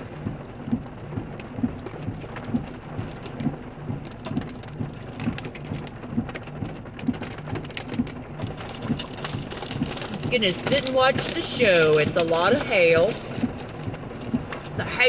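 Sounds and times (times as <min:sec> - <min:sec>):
low pulse: 0:00.0 - 0:08.8
hail hitting car roof: 0:00.0 - 0:15.0
steady wash of rain: 0:00.0 - 0:15.0.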